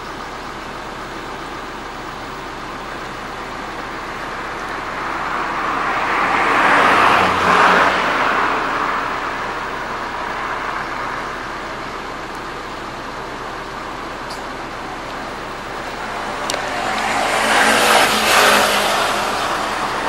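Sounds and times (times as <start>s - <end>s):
background traffic: 0.0s - 20.0s
motor vehicle passing by: 4.0s - 11.4s, 14.7s - 20.0s.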